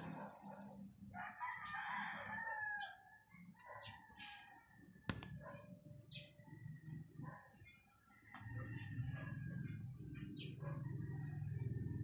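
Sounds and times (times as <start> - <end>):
rooster crowing: 1.2 - 3.3
sharp click: 5.1 - 5.4
small birds chirping: 9.6 - 11.9.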